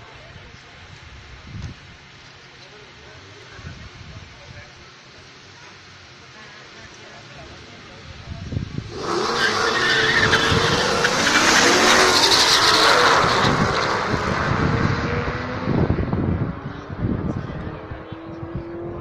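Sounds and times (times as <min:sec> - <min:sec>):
car engines at full throttle: 0:06.9 - 0:19.0
tyre squeal: 0:09.0 - 0:14.0.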